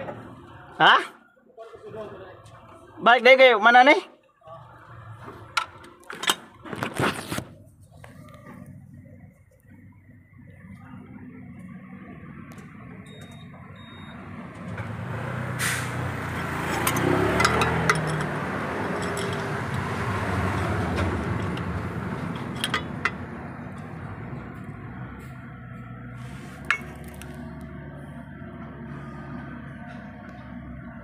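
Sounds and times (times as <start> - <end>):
vehicle engine passing by: 13.7 - 31.0
short hiss: 15.6 - 16.0.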